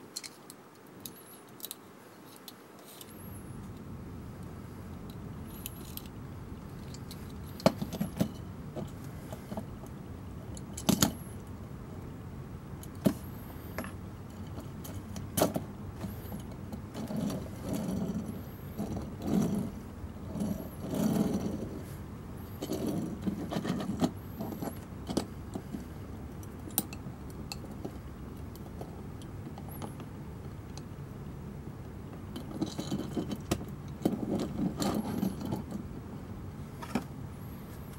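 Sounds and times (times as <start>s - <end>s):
soft rubbing and rumbling: 2.1s - 11.6s, 12.9s - 26.7s, 32.1s - 37.9s.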